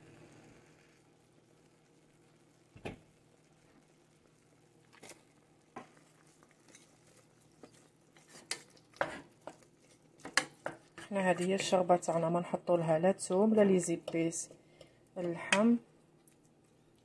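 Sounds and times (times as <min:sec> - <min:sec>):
wooden spoon stirring in pot: 0:04.9 - 0:17.0.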